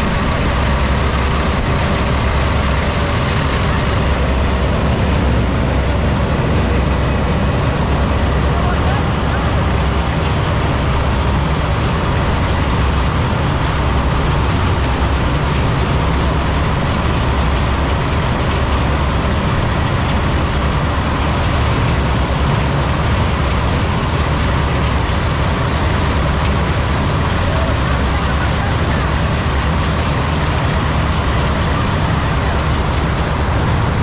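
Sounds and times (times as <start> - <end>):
combine harvester engine drone: 0.0 - 34.0.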